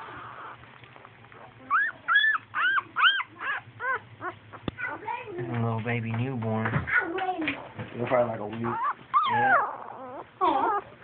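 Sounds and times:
puppy whimpering: 0:00.0 - 0:00.7, 0:01.3 - 0:05.4, 0:07.5 - 0:11.0.

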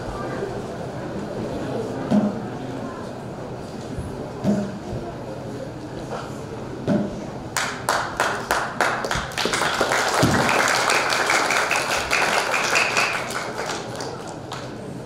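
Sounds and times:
rhythmic hand claps: 0:07.6 - 0:14.8
applause: 0:07.6 - 0:14.9.

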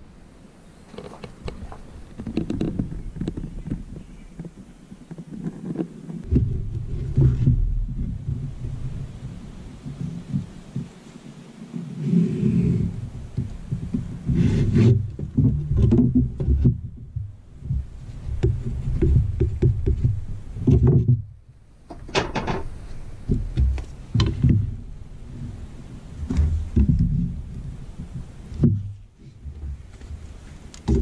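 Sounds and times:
wooden yardstick knocking and rubbing: 0:00.9 - 0:11.1, 0:12.1 - 0:21.3, 0:21.9 - 0:24.8
low rumble: 0:06.2 - 0:11.1.

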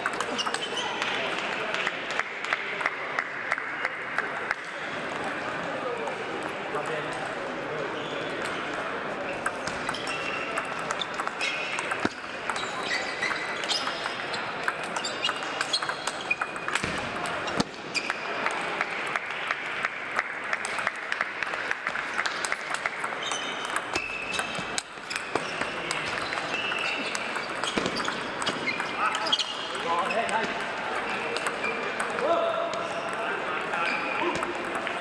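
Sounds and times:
table tennis balls clicking: 0:00.0 - 0:03.3, 0:08.3 - 0:32.3, 0:33.0 - 0:35.0
murmur of voices: 0:00.0 - 0:35.0
shoe squeaks on floor: 0:00.3 - 0:01.1, 0:09.3 - 0:16.6, 0:23.2 - 0:30.5, 0:31.1 - 0:32.0, 0:33.8 - 0:34.4.

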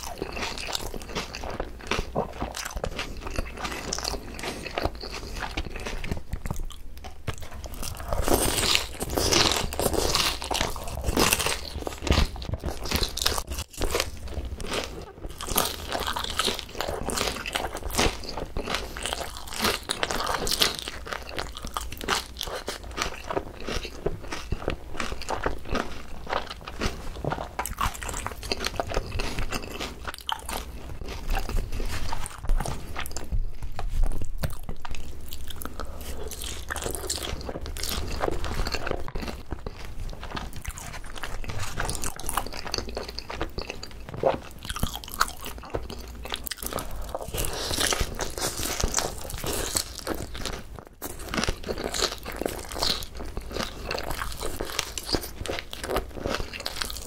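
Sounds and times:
chewing and crunching fried chicken: 0:00.0 - 0:57.0.

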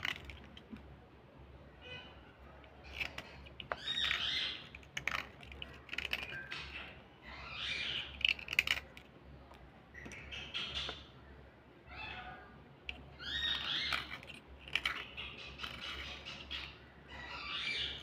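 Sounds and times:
blade scraping slate pencils: 0:00.0 - 0:00.8, 0:02.6 - 0:07.0, 0:07.9 - 0:09.1, 0:12.9 - 0:16.5.

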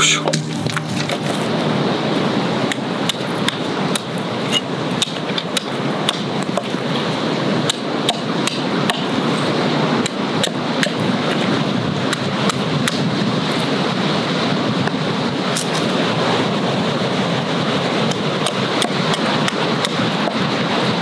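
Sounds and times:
hatchet chopping wood: 0:02.7 - 0:06.8, 0:07.7 - 0:09.1, 0:10.0 - 0:11.5, 0:18.1 - 0:20.4.

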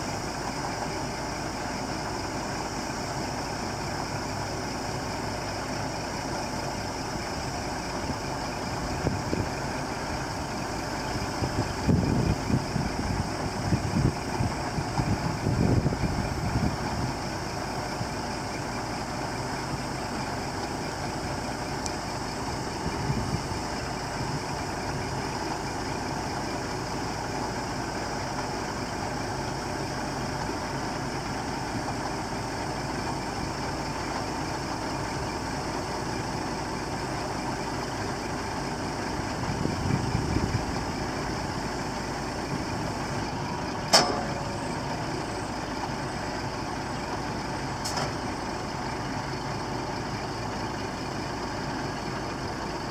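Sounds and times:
truck engine running: 0:00.0 - 0:52.9
sharp metallic clank: 0:43.9 - 0:44.7.

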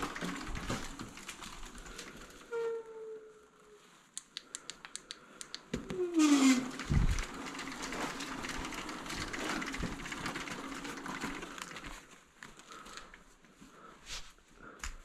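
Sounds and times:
dirt bike tyres rolling on concrete: 0:00.0 - 0:02.5, 0:05.7 - 0:13.1.

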